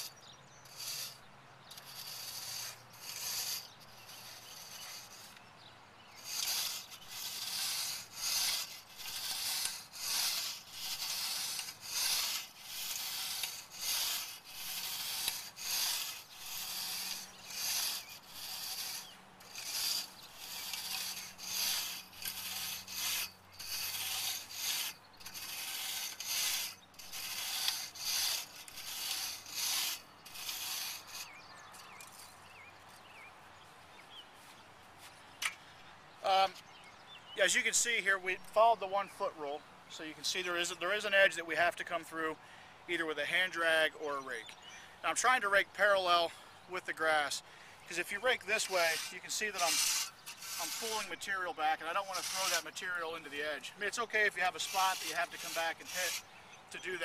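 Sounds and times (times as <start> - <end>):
rake scraping over dirt: 0.0 - 33.2, 36.2 - 36.8, 37.4 - 42.3, 42.9 - 57.0.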